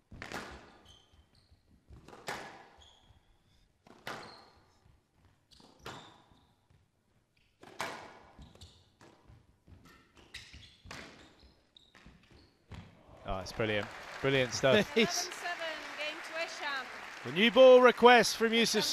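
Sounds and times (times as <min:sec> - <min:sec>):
shoes squeaking: 0:02.7 - 0:07.6, 0:08.3 - 0:13.0.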